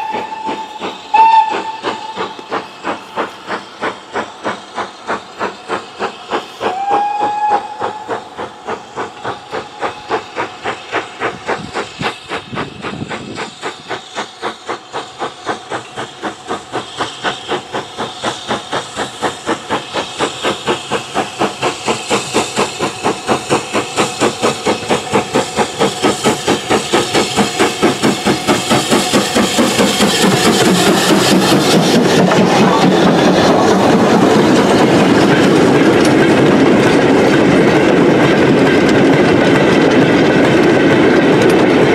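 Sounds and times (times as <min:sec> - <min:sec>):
steam whistle: 0:00.0 - 0:02.4, 0:06.7 - 0:08.2
loud hiss of steam: 0:00.0 - 0:41.9
steam locomotive chuffing: 0:00.0 - 0:41.9.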